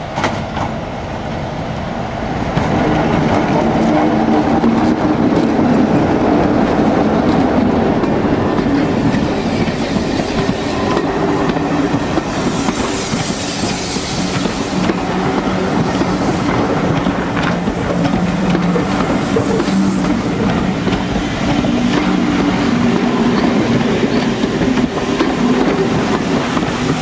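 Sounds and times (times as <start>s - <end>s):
diesel locomotive engine: 0.0s - 27.0s
wheels clacking over rail joints: 2.5s - 27.0s
steam hissing: 8.4s - 27.0s.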